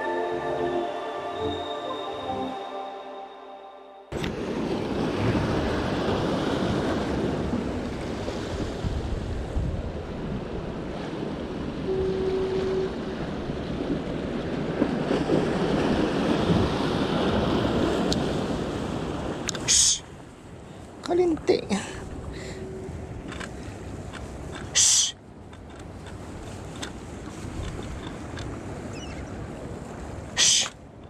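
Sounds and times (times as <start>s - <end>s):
surf washing against rocks: 4.1s - 31.0s
wind buffeting microphone: 4.2s - 31.0s.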